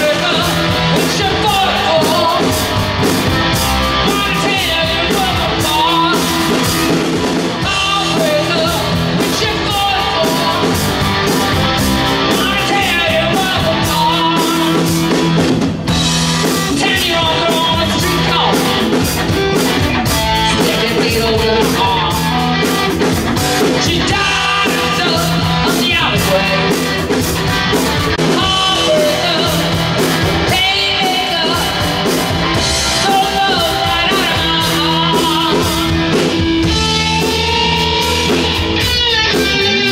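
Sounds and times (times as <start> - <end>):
drum kit: 0.0 - 39.9
electric bass: 0.0 - 39.9
electric guitar: 0.0 - 39.9
woman singing lead: 28.2 - 39.9.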